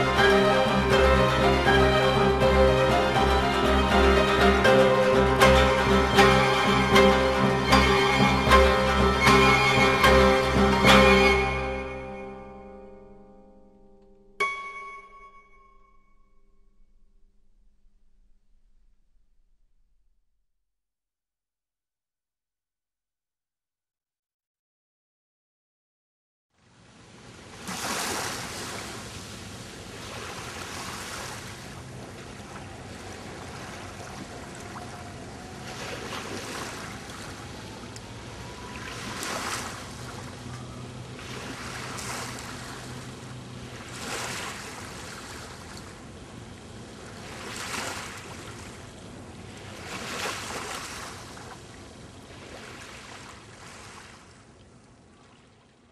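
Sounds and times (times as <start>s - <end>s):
water rushing past boat: 0.0s - 12.6s, 26.7s - 55.9s.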